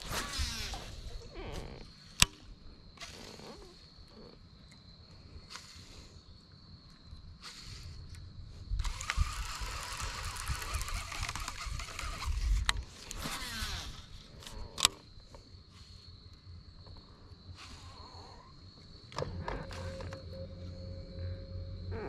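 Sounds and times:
fishing reel spool whirring: 0:00.0 - 0:01.7, 0:08.8 - 0:14.2, 0:19.2 - 0:22.0
faint high whine: 0:15.3 - 0:22.0.

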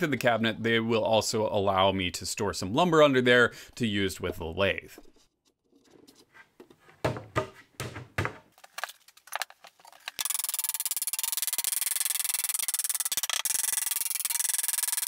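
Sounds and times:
wooden panels knocking and scraping: 0:05.8 - 0:08.5.

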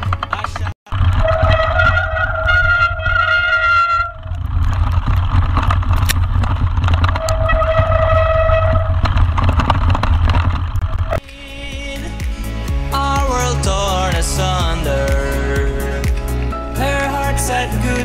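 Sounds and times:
wind and tyre noise over stones: 0:00.0 - 0:11.7
disc brake squealing: 0:01.2 - 0:04.2.

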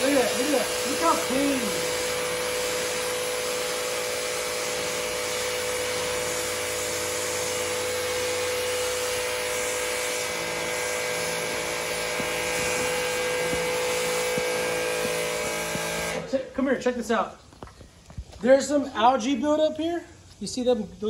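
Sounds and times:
water jet hissing on concrete: 0:00.0 - 0:16.3
pressure washer motor hum: 0:00.0 - 0:16.4.

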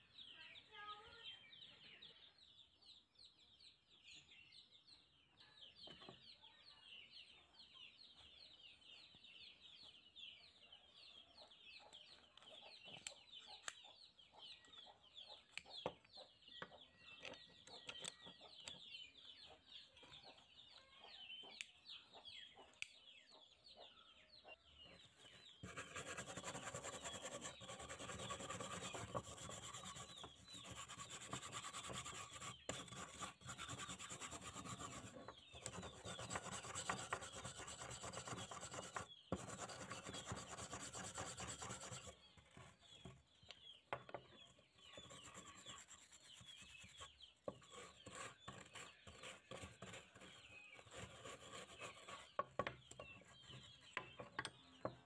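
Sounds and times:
faint birds chirping: 0:00.0 - 0:55.0
wire brush scrubbing metal: 0:25.6 - 0:42.1.

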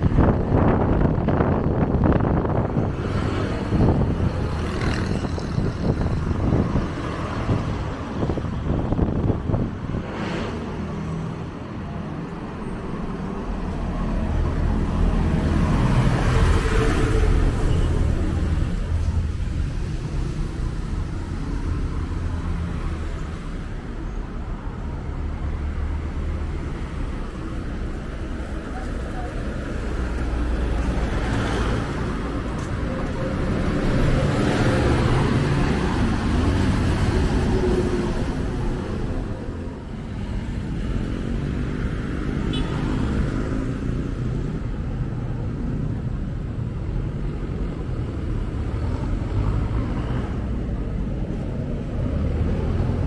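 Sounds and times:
bus engine and tyres passing: 0:00.0 - 0:53.0
road traffic passing: 0:00.0 - 0:53.0.

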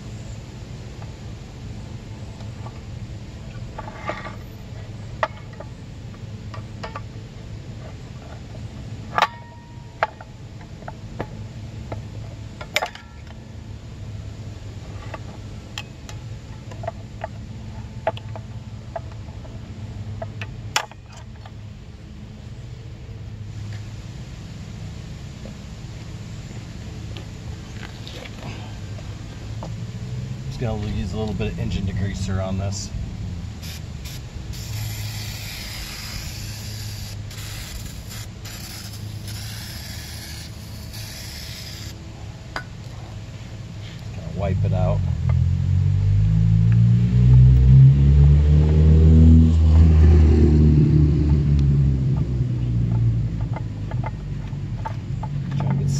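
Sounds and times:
steady low hum: 0:00.0 - 0:55.9
aerosol can spraying hiss: 0:33.6 - 0:42.0.

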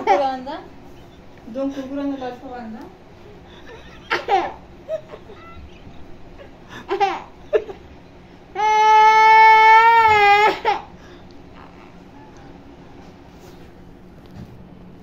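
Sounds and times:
girl sobbing and wailing: 0:08.6 - 0:10.8.

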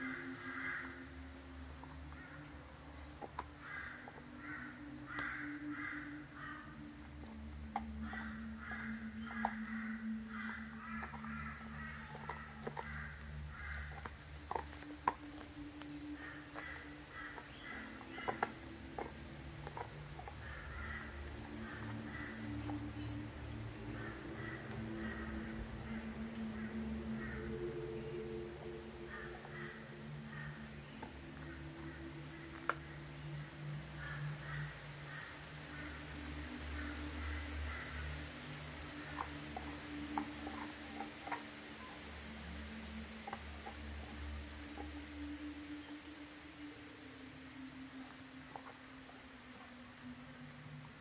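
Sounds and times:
bird calls: 0:00.0 - 0:51.0
steady low hum: 0:00.0 - 0:51.0
dog crunching bone: 0:07.1 - 0:33.0, 0:38.0 - 0:45.0.

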